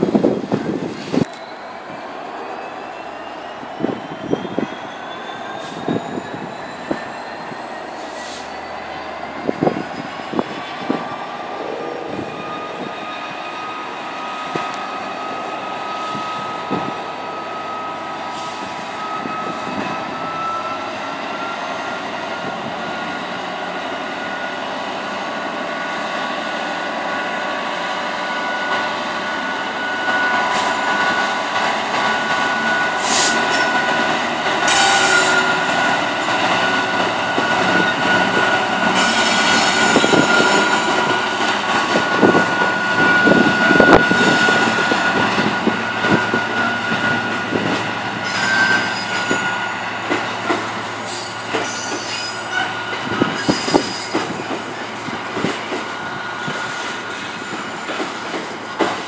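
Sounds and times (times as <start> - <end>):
diesel locomotive engine: 0.0 - 59.0
rail and wheel clatter: 0.0 - 59.0
high-pitched whine: 2.9 - 16.5.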